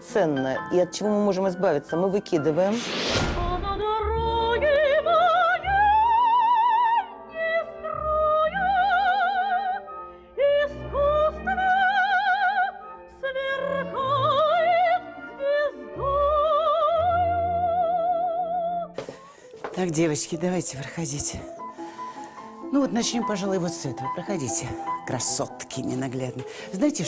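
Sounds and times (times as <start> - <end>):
soft instrumental accompaniment: 0.0 - 27.0
woman singing soprano: 3.4 - 19.3.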